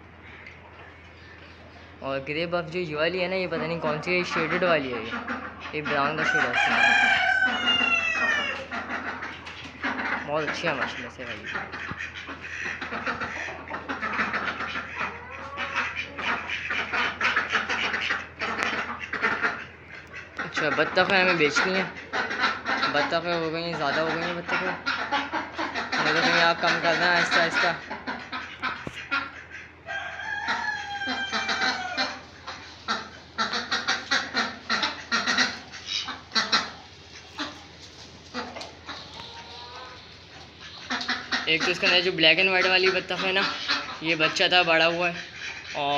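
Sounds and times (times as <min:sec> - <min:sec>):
chickens clucking: 0:00.0 - 0:45.9
ducks quacking: 0:00.0 - 0:45.9
short sharp poultry calls: 0:03.6 - 0:45.8
rooster crowing: 0:06.2 - 0:08.7, 0:29.8 - 0:32.2.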